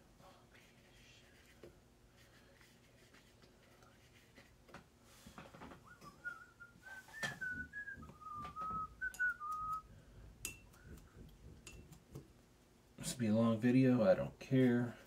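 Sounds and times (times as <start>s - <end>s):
person whistling a tune: 5.8s - 9.9s
faint taps and rustles: 7.1s - 12.4s.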